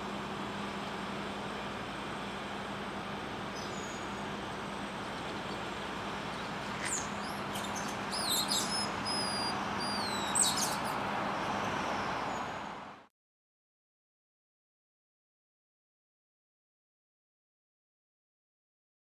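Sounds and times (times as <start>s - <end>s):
city traffic hum: 0.0s - 13.1s
high whistled chirps: 6.8s - 11.0s.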